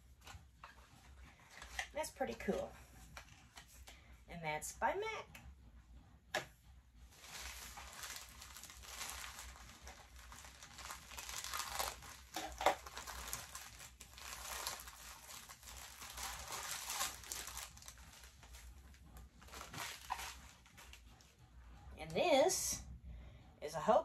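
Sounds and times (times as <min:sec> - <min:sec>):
plastic bag crinkling: 0:07.1 - 0:21.0.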